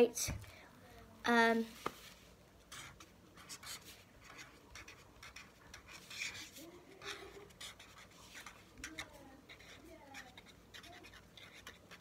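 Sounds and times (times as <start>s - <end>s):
pen scratching on paper: 2.7s - 12.0s.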